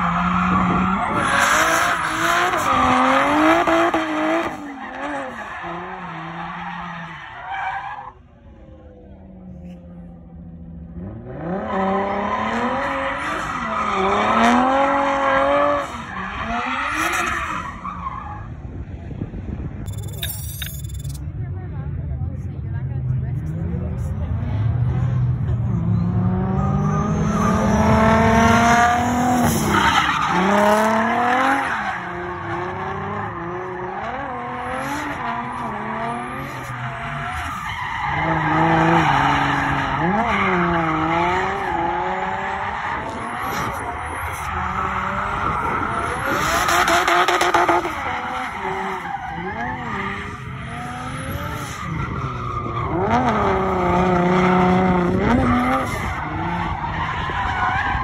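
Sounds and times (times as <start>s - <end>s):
tyres skidding and squealing: 0.0s - 18.9s, 19.8s - 21.2s, 23.4s - 58.0s
car engine revving: 22.8s - 58.0s.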